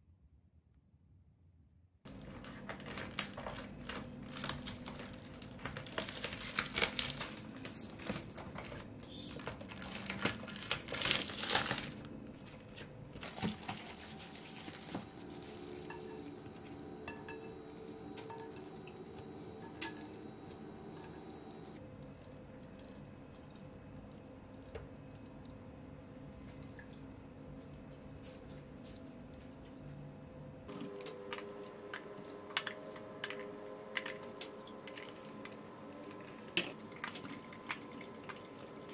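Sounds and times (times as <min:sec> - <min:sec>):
plastic wrapping crinkling: 0:02.1 - 0:17.2.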